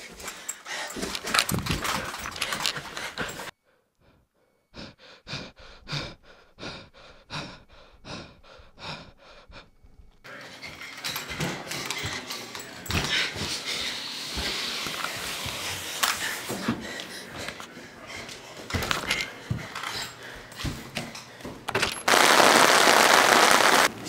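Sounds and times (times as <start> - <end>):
rapid panting: 0.0 - 10.2.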